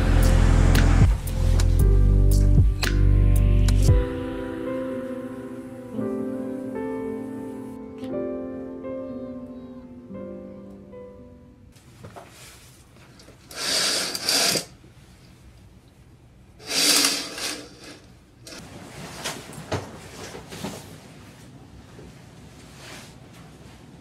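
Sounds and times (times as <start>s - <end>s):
curtains swishing along rail: 13.4s - 14.7s, 16.6s - 21.0s.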